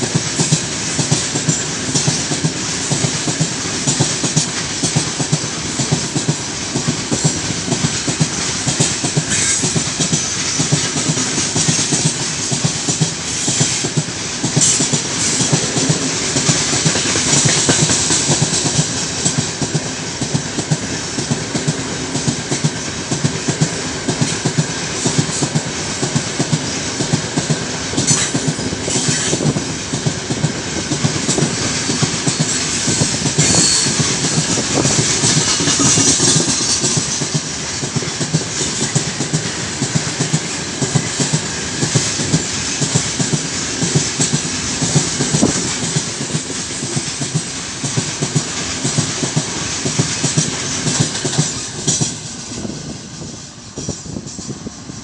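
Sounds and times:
train wheels squealing: 0:00.0 - 0:19.5, 0:23.6 - 0:29.7, 0:30.8 - 0:55.0
wheels clattering over rail joints: 0:26.4 - 0:54.6.

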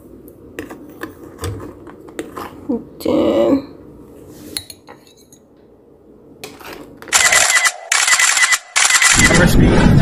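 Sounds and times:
camera shutter clicking rapidly: 0:07.1 - 0:09.4.

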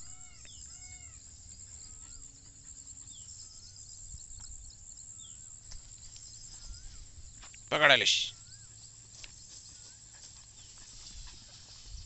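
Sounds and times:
animal calls and chirps: 0:00.0 - 0:12.0
insect hiss: 0:00.0 - 0:12.0.

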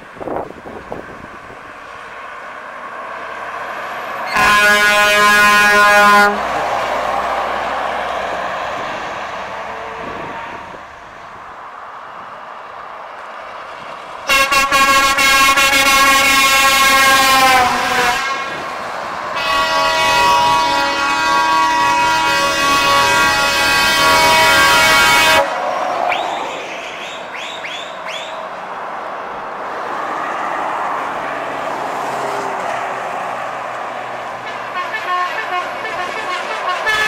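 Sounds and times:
truck driving by: 0:00.0 - 0:37.0
truck air horn: 0:04.2 - 0:06.5, 0:14.3 - 0:18.7, 0:19.3 - 0:25.6, 0:34.4 - 0:37.0.

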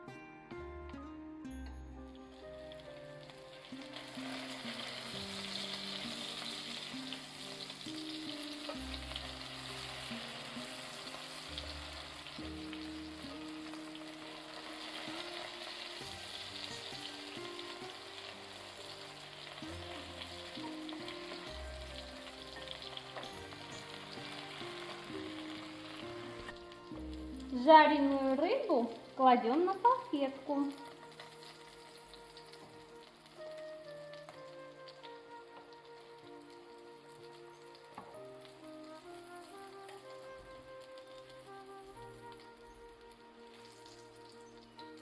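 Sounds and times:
hot oil sizzling: 0:01.5 - 0:45.0.

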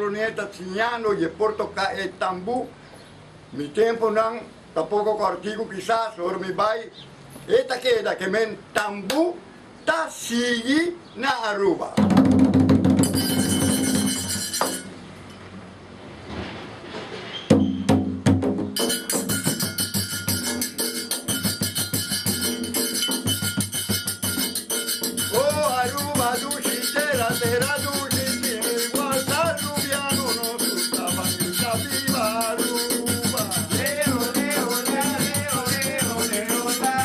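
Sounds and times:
hand drums: 0:12.0 - 0:14.9, 0:17.6 - 0:37.0
man singing: 0:25.2 - 0:37.0.

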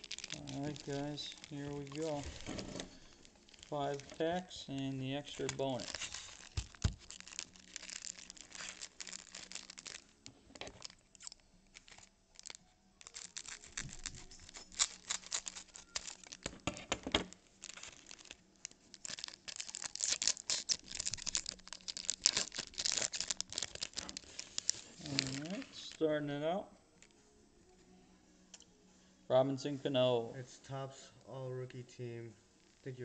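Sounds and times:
cards being handled: 0:00.0 - 0:07.2
foil wrapper crinkling and tearing: 0:00.0 - 0:26.0.

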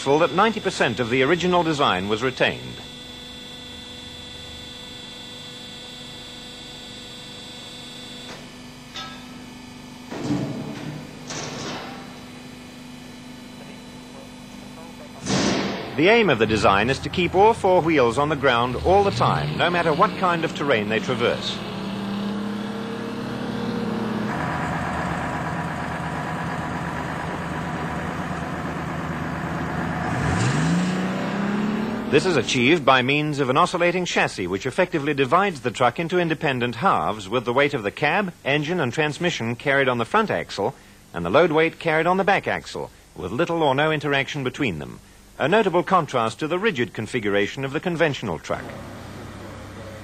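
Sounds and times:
electrical hum: 0:00.0 - 0:50.0
faint high whine: 0:00.0 - 0:50.0
truck engine driving past: 0:15.3 - 0:33.0, 0:48.6 - 0:50.0.

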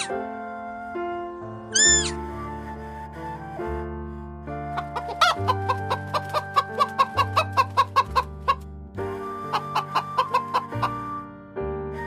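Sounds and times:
background music with sustained notes: 0:00.0 - 0:12.0
chickens clucking: 0:04.8 - 0:08.6, 0:09.5 - 0:10.9.

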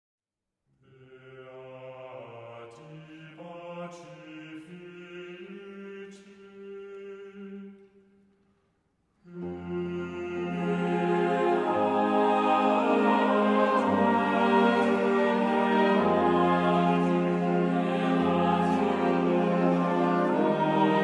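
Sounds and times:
low voices chanting: 0:09.2 - 0:21.0.

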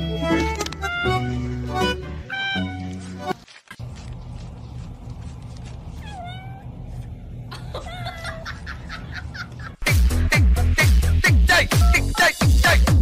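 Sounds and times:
cat meowing: 0:05.9 - 0:06.8
electronic dance music: 0:09.8 - 0:13.0.

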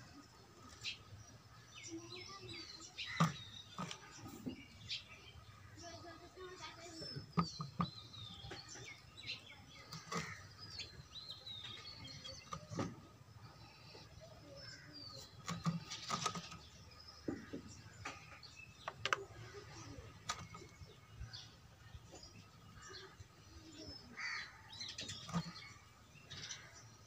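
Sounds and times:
birds chirping: 0:00.0 - 0:27.0
sharp clicks and knocks: 0:17.2 - 0:19.3.

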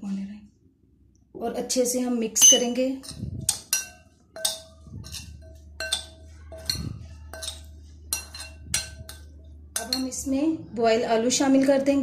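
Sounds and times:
spoon clinking against glass: 0:02.4 - 0:10.1
spoon stirring in glass bowl: 0:02.4 - 0:10.3.

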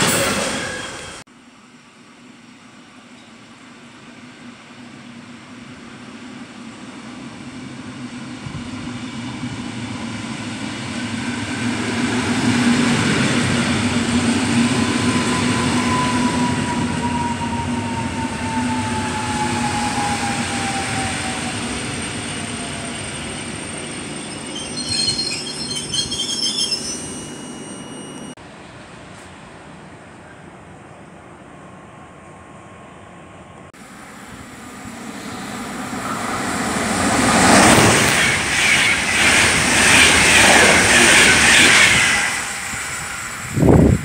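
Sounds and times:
high-pitched brake squeals: 0:00.0 - 0:01.2, 0:15.0 - 0:28.4
falling train whine: 0:00.0 - 0:44.0
train wheels rumbling on rails: 0:03.2 - 0:31.1, 0:33.5 - 0:44.0.

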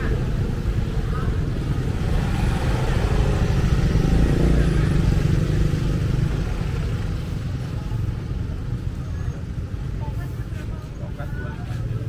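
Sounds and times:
motorbike engine passing: 0:00.1 - 0:08.5.

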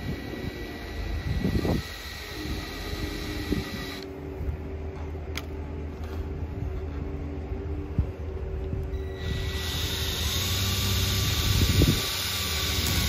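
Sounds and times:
cordless drill boring: 0:00.0 - 0:04.1, 0:09.0 - 0:13.0.

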